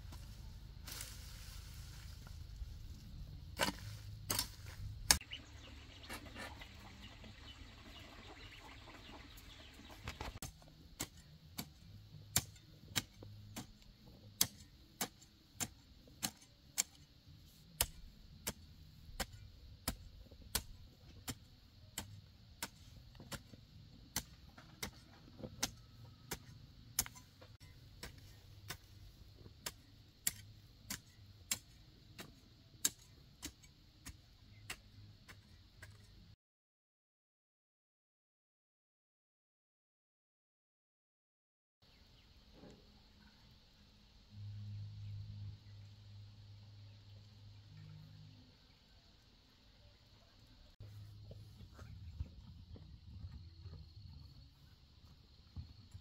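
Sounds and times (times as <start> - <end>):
hoe chopping into dry soil: 3.6 - 5.2, 10.1 - 17.0, 17.8 - 36.2.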